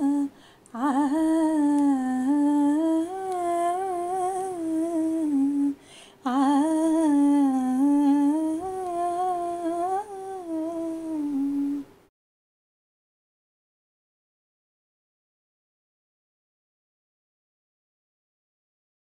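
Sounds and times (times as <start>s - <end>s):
woman humming a slow melody: 0.0s - 12.0s.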